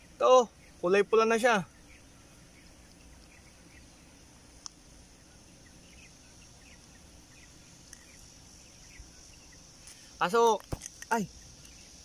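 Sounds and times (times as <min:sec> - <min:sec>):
faint chirps: 0:00.0 - 0:12.0
high insect drone: 0:00.0 - 0:12.0
sharp click: 0:10.5 - 0:11.8.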